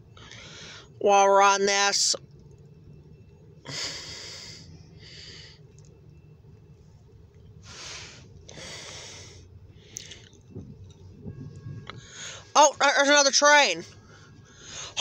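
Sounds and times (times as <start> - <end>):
low hum inside car: 0.0 - 15.0
person breathing: 0.2 - 1.0, 3.7 - 5.6, 7.6 - 10.3, 12.0 - 12.5, 13.9 - 15.0.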